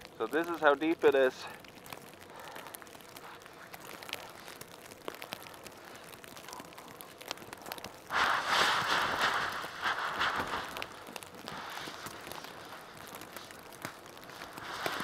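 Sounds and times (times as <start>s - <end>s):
rush of snow and tent fabric: 8.1s - 15.0s.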